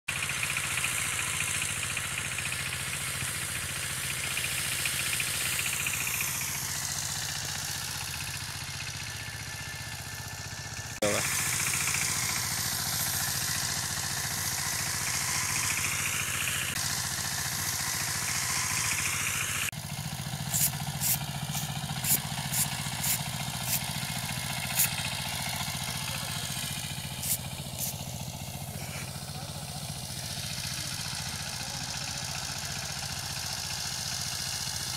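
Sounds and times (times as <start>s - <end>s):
hiss: 0.1s - 10.4s, 11.0s - 34.9s
power tiller engine running: 0.1s - 34.9s.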